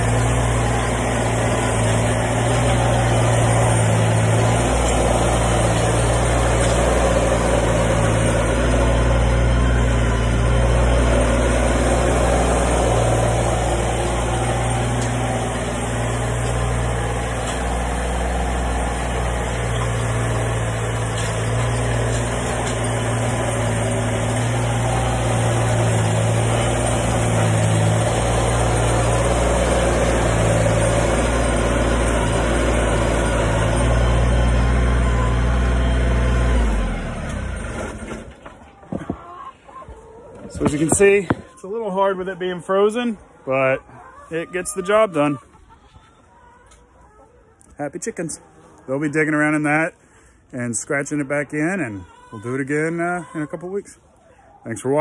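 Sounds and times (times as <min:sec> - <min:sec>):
tractor engine running: 0:00.0 - 0:39.2, 0:40.5 - 0:43.0.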